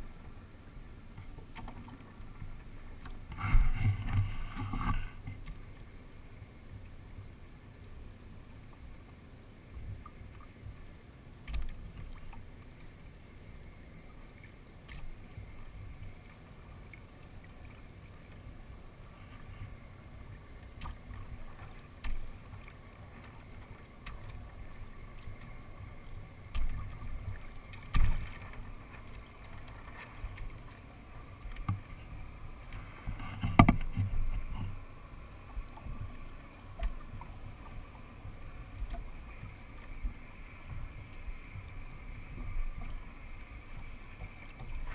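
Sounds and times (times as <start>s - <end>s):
water lapping against boat hull: 0.0s - 44.9s
boat hull knocks: 33.3s - 34.7s.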